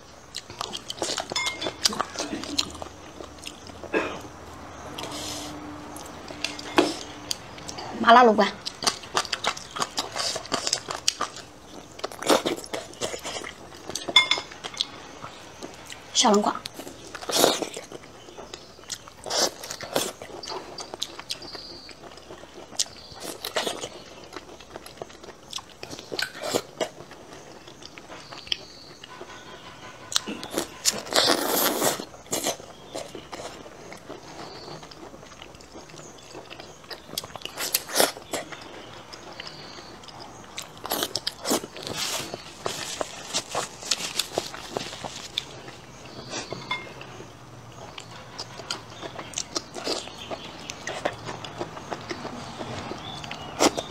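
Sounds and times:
person biting and chewing food: 0:30.2 - 0:38.6, 0:39.4 - 0:46.5.

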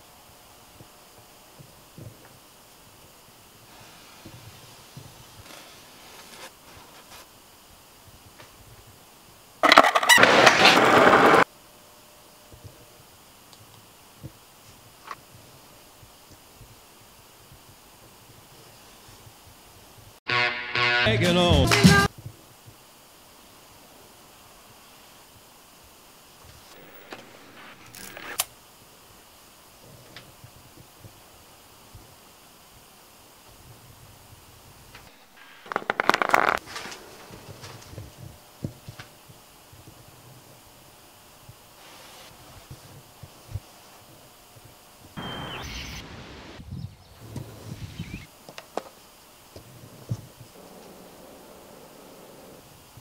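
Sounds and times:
low hiss: 0:00.0 - 0:53.0
skateboard clattering: 0:09.6 - 0:11.4, 0:35.1 - 0:37.5
skateboard grinding: 0:09.6 - 0:11.4, 0:35.1 - 0:37.8.

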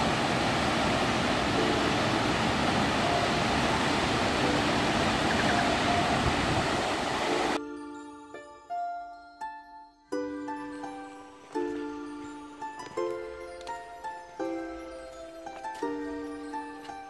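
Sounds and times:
waterfall rushing: 0:00.0 - 0:07.6.

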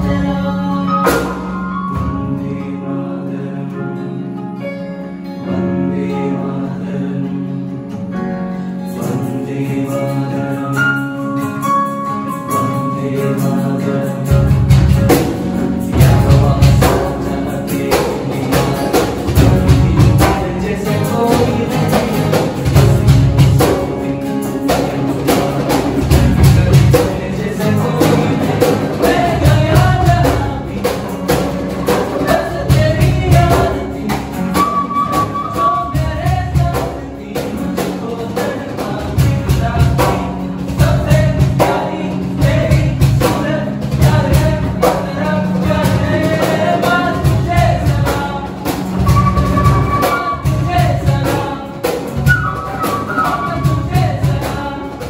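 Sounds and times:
young men singing together: 0:00.0 - 0:04.3, 0:05.4 - 0:08.0, 0:08.8 - 0:11.2, 0:12.2 - 0:55.0
keyboard: 0:00.0 - 0:55.0
strummed acoustic guitars: 0:00.0 - 0:55.0
box drum beat: 0:13.4 - 0:55.0
flute: 0:34.5 - 0:36.4, 0:49.0 - 0:51.0, 0:52.2 - 0:54.2.

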